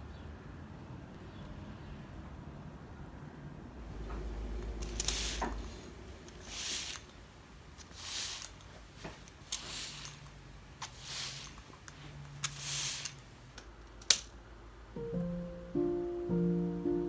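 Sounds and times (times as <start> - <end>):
plant mister spraying: 4.7 - 13.3.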